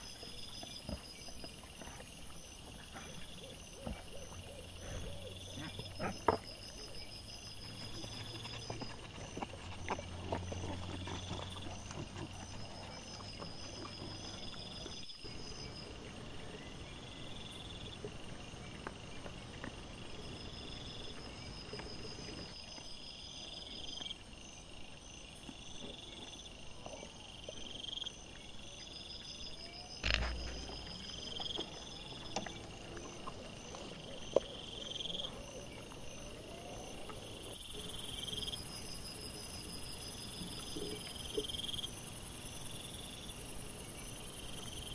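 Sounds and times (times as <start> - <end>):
boars rooting in leaf litter: 0.0 - 16.5, 29.9 - 43.3
night insects chirping: 0.0 - 44.9.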